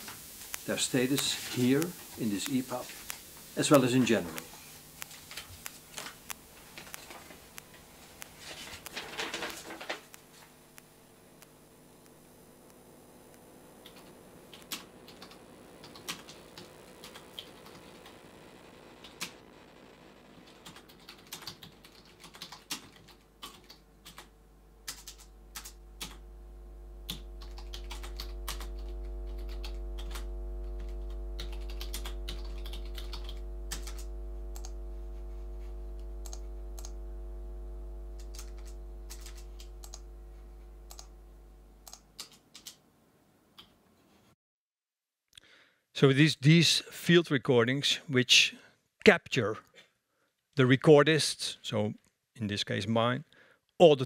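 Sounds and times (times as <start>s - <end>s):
deep hum with steady tones: 0.0s - 21.3s, 23.8s - 42.0s.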